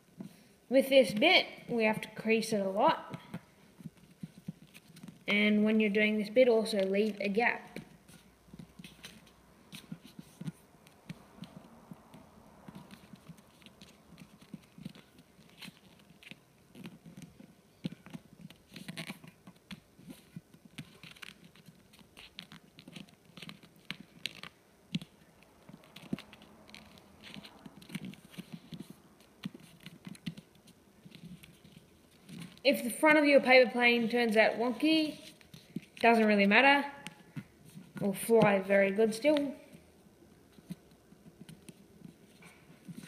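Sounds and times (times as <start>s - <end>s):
paper crinkling and rustling: 7.9s - 32.7s.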